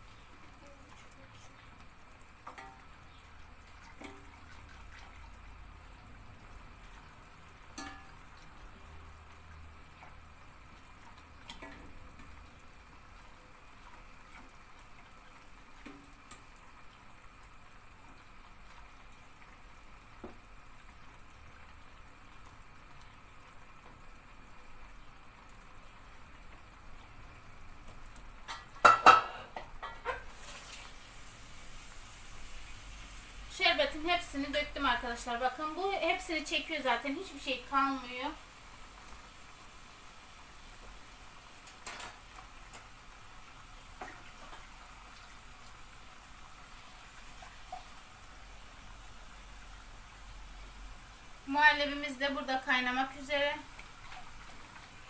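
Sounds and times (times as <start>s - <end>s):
pan and ladle clattering: 7.7s - 8.2s, 28.4s - 30.5s.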